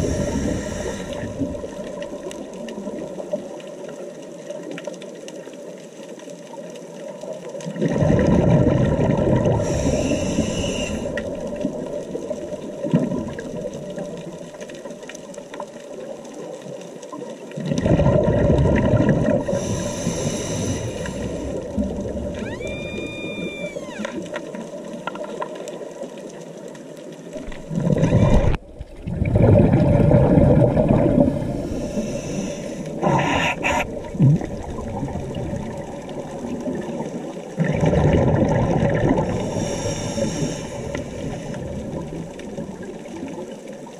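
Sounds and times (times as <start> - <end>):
exhaled bubbles rushing underwater: 0.0 - 4.6, 6.6 - 43.9
whistle-like tone: 22.4 - 24.1.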